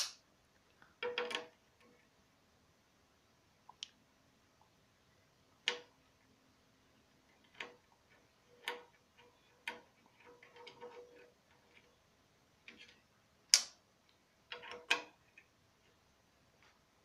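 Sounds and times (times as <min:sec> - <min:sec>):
allen key clicking on bolts: 0:01.0 - 0:01.9, 0:07.4 - 0:11.9, 0:14.5 - 0:15.2
allen key scraping: 0:07.3 - 0:12.0, 0:14.5 - 0:15.2.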